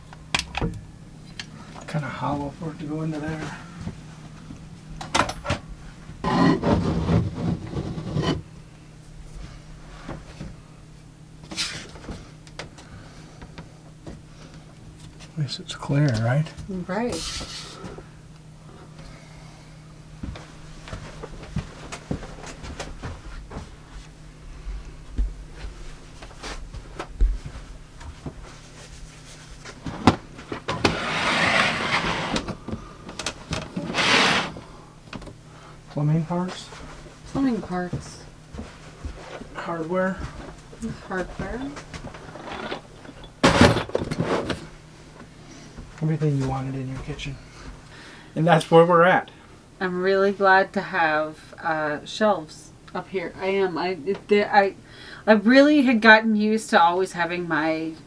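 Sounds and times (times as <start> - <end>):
steady low hum: 0.0 - 58.0
shelf scraping and rubbing: 6.2 - 8.4, 28.5 - 32.6, 33.7 - 34.6.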